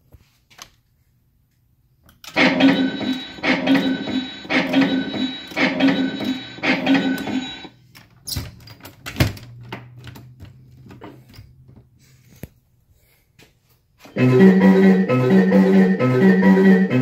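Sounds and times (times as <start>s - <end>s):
short repeating tune: 2.4s - 7.7s, 14.1s - 17.0s.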